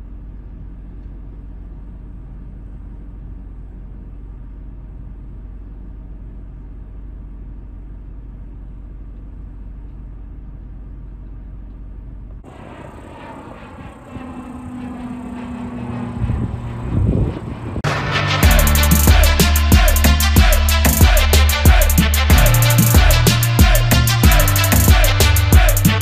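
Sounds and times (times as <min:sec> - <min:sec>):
vehicle engines rumbling: 0:12.2 - 0:25.9.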